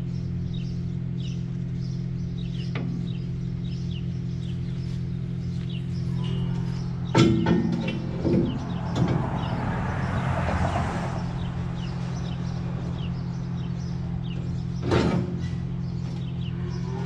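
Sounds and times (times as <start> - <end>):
diesel engine idling: 0.0 - 17.0
small birds chirping: 0.0 - 17.0
metal clank: 6.3 - 9.7, 14.8 - 16.3.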